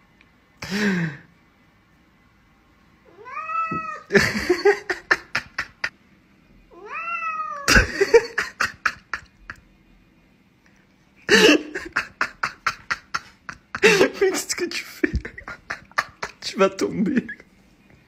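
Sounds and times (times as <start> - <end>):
cat meowing: 3.1 - 4.1, 6.7 - 7.7.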